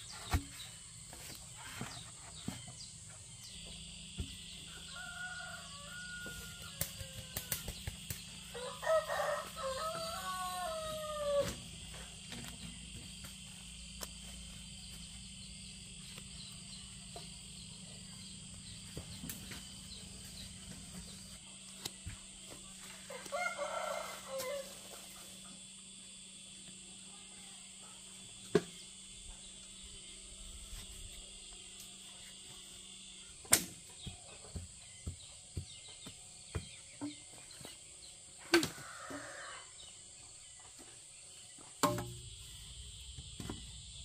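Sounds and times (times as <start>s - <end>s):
high buzz of insects: 0.0s - 44.0s
rooster crowing: 4.6s - 7.6s, 8.5s - 11.6s, 23.1s - 24.9s, 38.6s - 39.8s.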